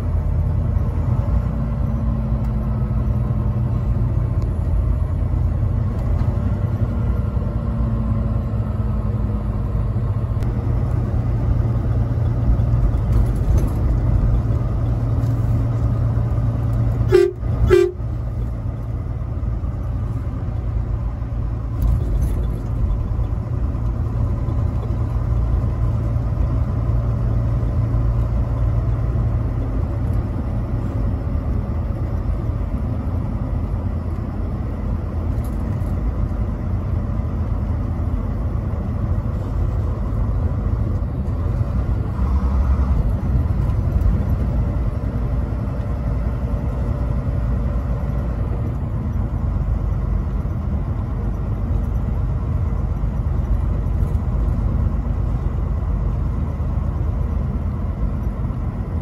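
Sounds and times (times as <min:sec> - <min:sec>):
truck engine and tyres drone: 0:00.0 - 0:59.0
truck horn toots: 0:17.0 - 0:18.2.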